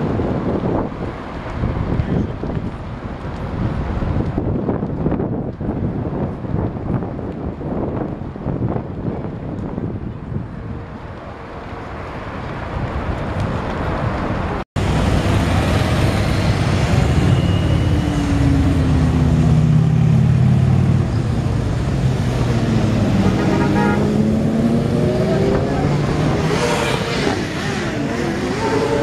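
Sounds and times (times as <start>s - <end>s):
wind noise on microphone: 0.0s - 29.0s
motorcycles riding past: 14.8s - 29.0s.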